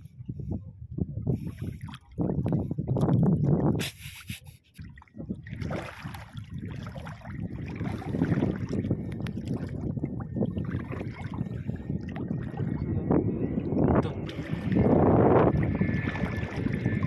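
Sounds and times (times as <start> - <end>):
water sloshing and splashing: 1.3 - 3.8, 4.6 - 17.0.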